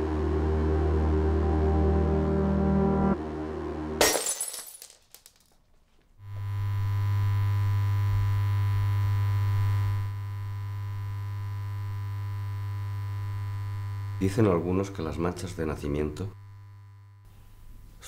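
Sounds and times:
wine glass shattering: 4.0 - 5.5
glass pieces clinking: 4.0 - 5.6
electrical hum with hiss: 6.2 - 18.0.

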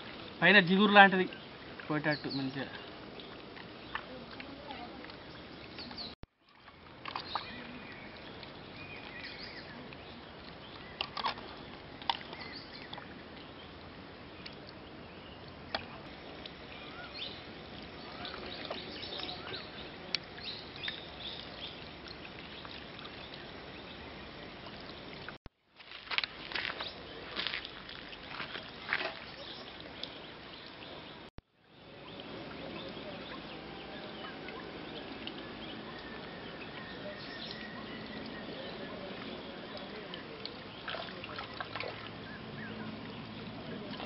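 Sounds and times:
wet sloshing of hands washing fish: 25.8 - 30.1, 40.3 - 42.3.

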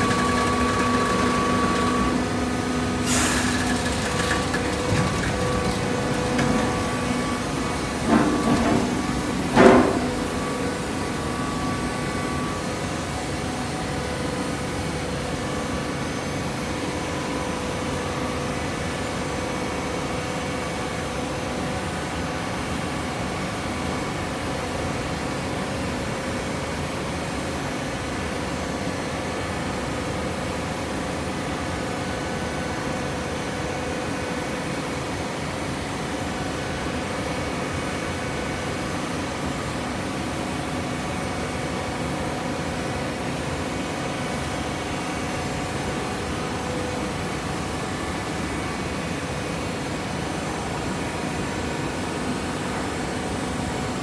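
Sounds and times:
baler machine hum: 0.0 - 13.1.

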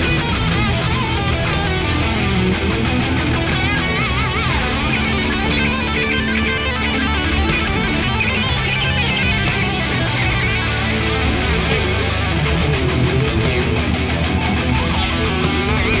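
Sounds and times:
rock music with electric guitar: 0.0 - 16.0
wavering lead guitar: 0.0 - 16.0.

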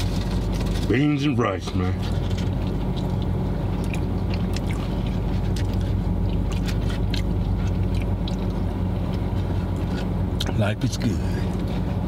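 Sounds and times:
car engine idling: 0.0 - 12.0
chewing food: 2.0 - 10.6.

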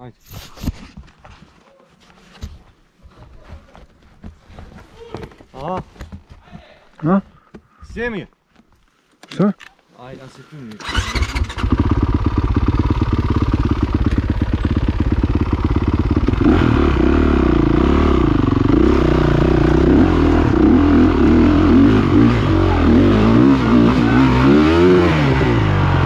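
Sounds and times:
motorcycle engine idling and revving: 10.8 - 26.0.

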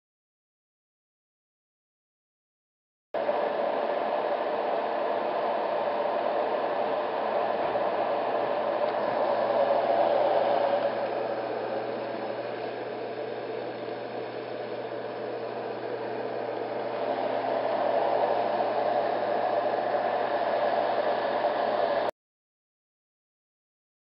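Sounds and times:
white noise machine whooshing: 3.2 - 22.1.

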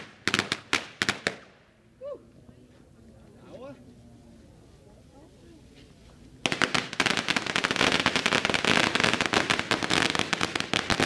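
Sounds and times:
firecrackers crackling: 0.0 - 1.6, 6.3 - 11.0.

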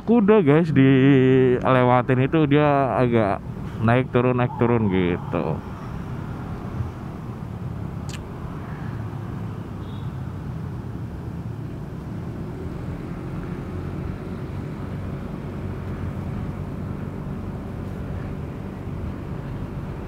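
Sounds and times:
vehicle driving rumble: 0.0 - 20.0
sharp click: 8.1 - 8.3.

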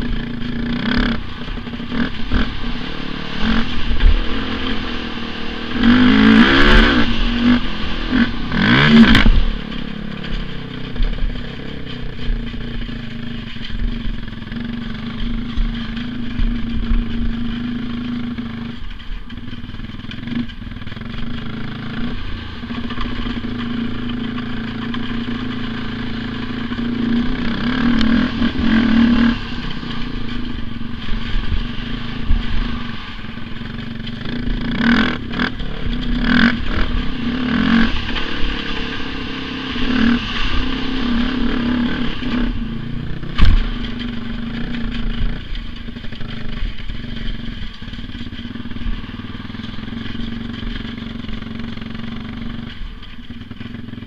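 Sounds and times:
atv engine revving: 0.0 - 54.0
sharp knock: 43.4 - 43.8.

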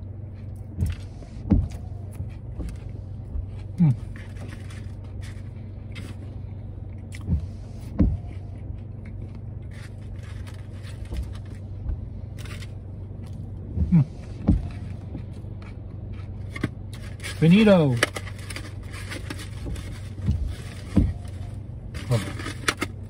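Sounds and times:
car cabin hum: 0.0 - 23.0
low throat sounds: 3.7 - 4.2, 13.7 - 14.7.

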